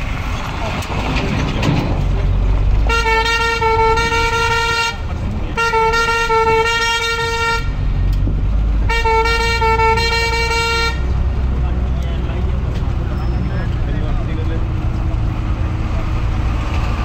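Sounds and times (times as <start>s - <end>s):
moving vehicle rumble: 0.0s - 17.0s
vehicle horn blasts: 2.9s - 5.0s, 5.6s - 7.8s, 8.9s - 11.1s.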